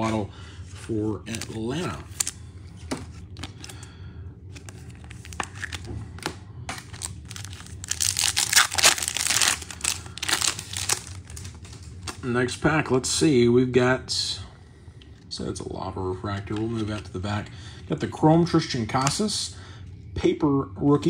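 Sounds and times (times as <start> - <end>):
foil wrapper crinkling and tearing: 1.3 - 2.4, 4.5 - 12.3.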